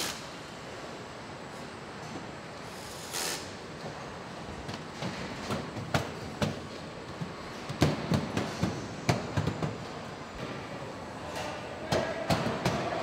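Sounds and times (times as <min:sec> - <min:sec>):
factory background din: 0:00.0 - 0:13.0.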